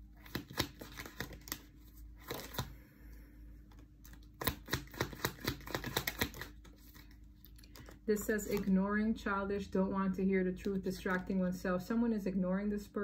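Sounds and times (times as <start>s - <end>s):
cards being shuffled: 0.2s - 2.8s, 3.6s - 8.8s.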